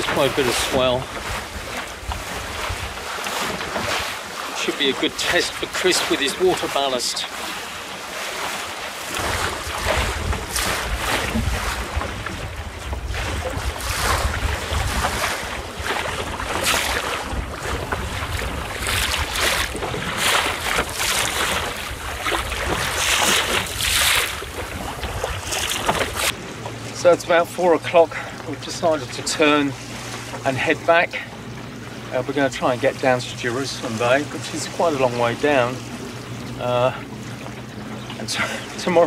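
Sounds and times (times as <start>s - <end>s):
wind buffeting microphone: 0.0s - 4.1s, 9.1s - 26.6s
choppy water washing: 0.0s - 39.0s.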